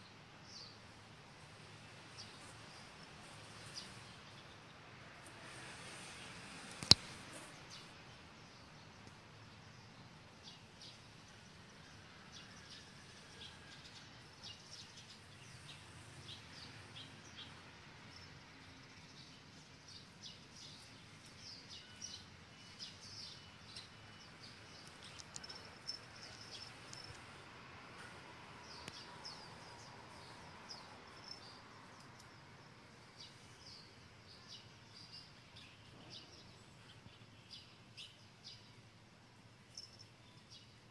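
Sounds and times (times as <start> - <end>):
small birds chirping: 0.0 - 40.9
sharp click: 6.7 - 7.1.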